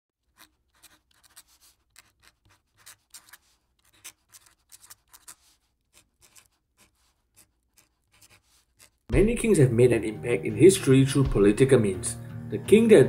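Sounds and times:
marker scratching on paper: 0.2 - 9.1.

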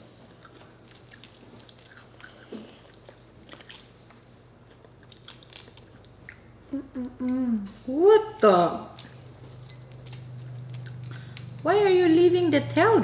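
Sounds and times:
person chewing: 0.2 - 7.8, 9.0 - 11.6.

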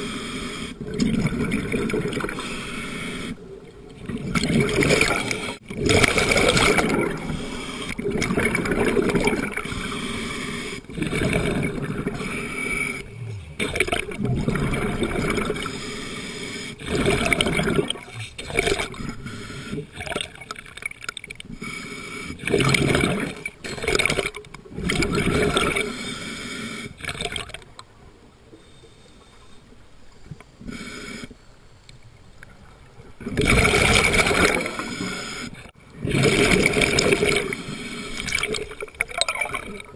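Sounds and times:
underwater breath bubbling: 0.0 - 27.6, 33.2 - 39.9.

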